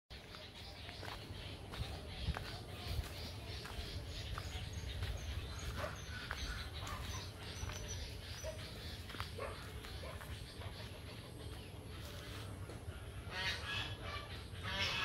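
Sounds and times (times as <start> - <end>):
footsteps on dirt path: 0.1 - 13.6
distant dog barking: 5.5 - 11.0, 14.0 - 14.4.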